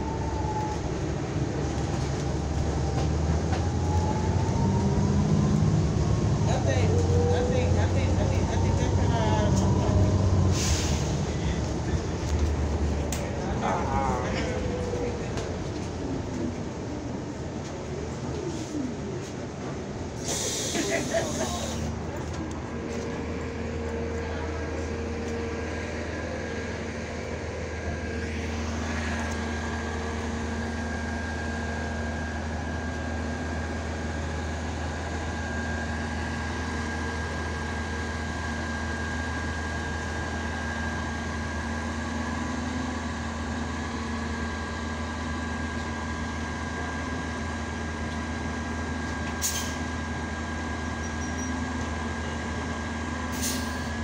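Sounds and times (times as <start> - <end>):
bus engine idling: 0.0 - 54.0.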